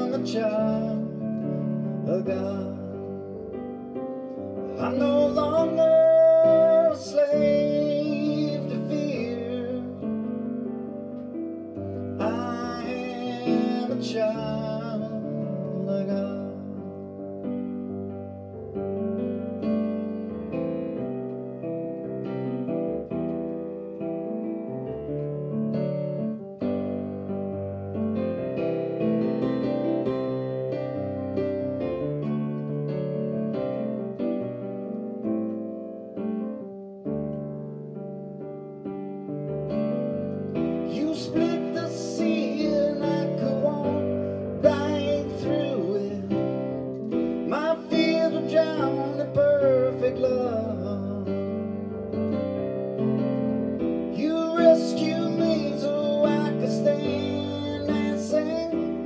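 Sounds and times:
man singing with vibrato: 0.0 - 3.4, 4.7 - 10.1, 12.2 - 17.1, 40.9 - 51.6, 54.2 - 59.0
digital piano playing chords: 0.0 - 59.0.

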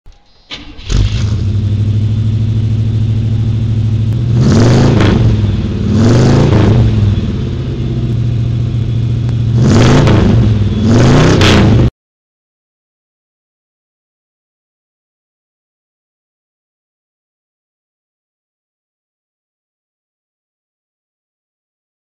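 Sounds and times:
car engine starting: 0.1 - 11.9
car engine idling: 0.5 - 11.4
car engine revving: 0.5 - 11.9.

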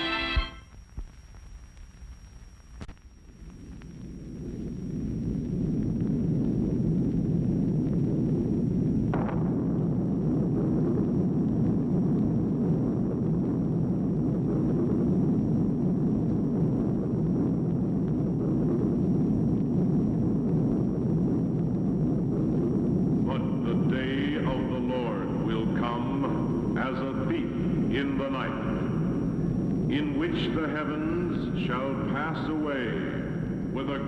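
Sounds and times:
explosion low rumble: 3.3 - 34.0
sharp explosion burst: 9.0 - 14.8.

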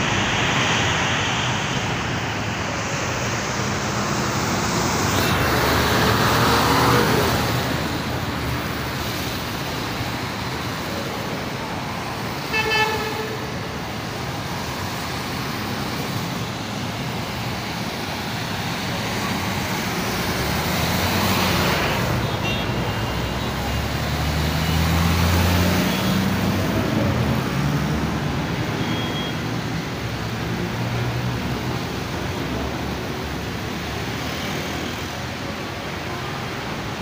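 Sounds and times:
vehicles passing on wet road: 0.0 - 37.0
car horn toot: 12.5 - 13.4.

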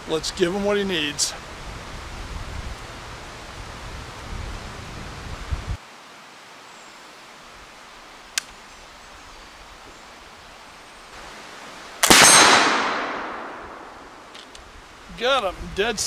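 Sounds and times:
rifle shot with echo: 12.0 - 14.3.

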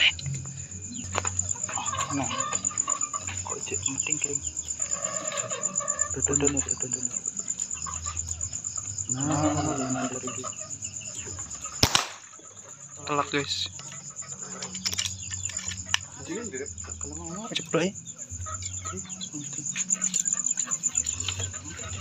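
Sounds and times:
cricket chirping: 0.0 - 22.0
air rifle shot: 11.8 - 12.3.

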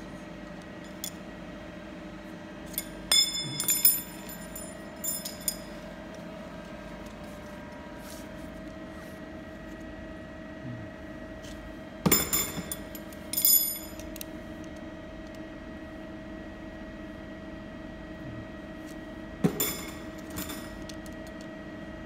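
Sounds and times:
machine hum: 0.0 - 22.0
metal rods clinking: 2.7 - 5.7, 12.1 - 14.0.

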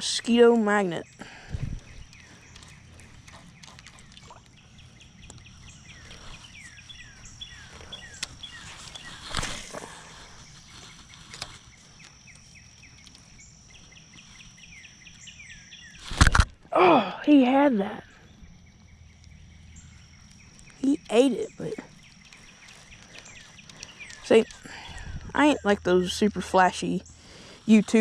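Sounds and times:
bird chirping: 0.0 - 16.2, 17.3 - 28.0
steady high-pitched drone: 16.7 - 28.0.

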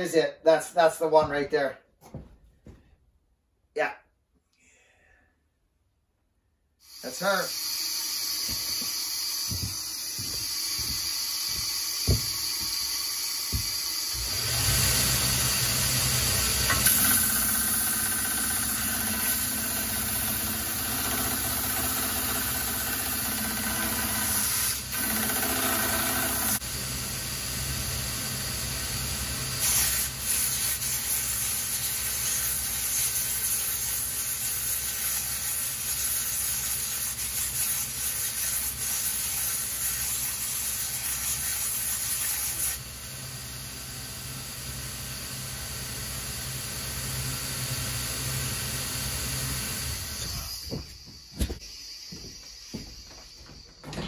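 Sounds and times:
belt sander grinding wood: 6.9 - 27.0.

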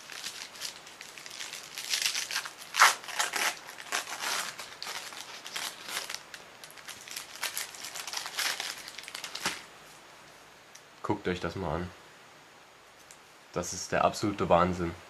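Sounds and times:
paper wrapper tearing and crinkling: 0.0 - 9.7.

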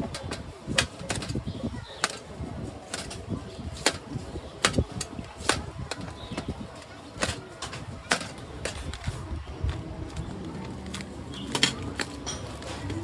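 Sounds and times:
low background noise: 0.0 - 13.0.

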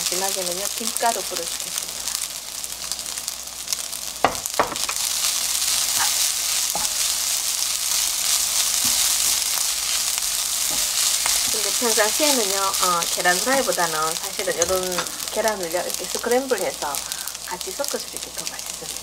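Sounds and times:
rice sizzling in a frying pan: 0.0 - 19.0
sharp knocks: 4.2 - 5.0
spatula scraping a pan: 5.3 - 12.1.

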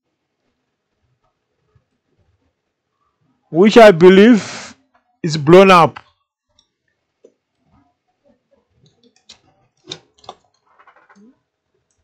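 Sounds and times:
faint clicks and taps: 0.4 - 3.2, 6.0 - 12.0
small ticks: 6.0 - 8.0.

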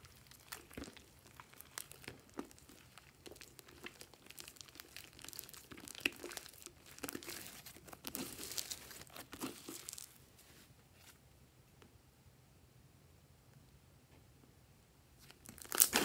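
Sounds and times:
slime squeezed with sticky crackles: 0.0 - 10.2, 15.2 - 16.0.

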